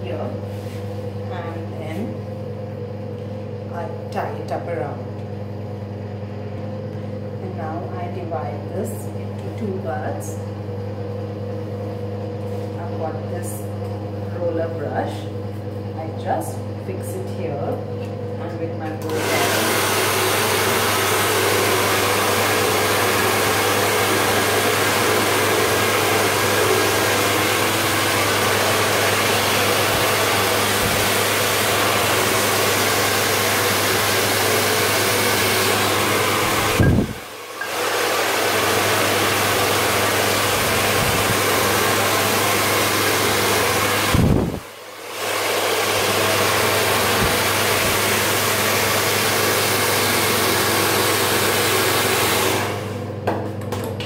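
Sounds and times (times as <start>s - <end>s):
hair dryer running: 0.0s - 54.0s.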